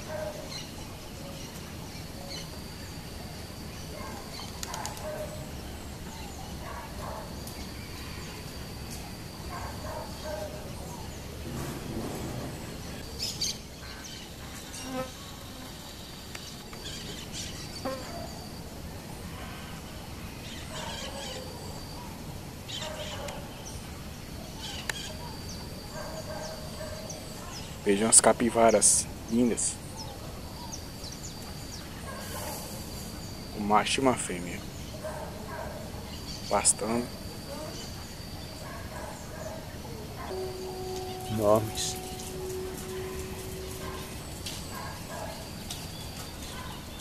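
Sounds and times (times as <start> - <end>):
bird calls and chirps: 0.0 - 47.0
insects droning: 0.0 - 47.0.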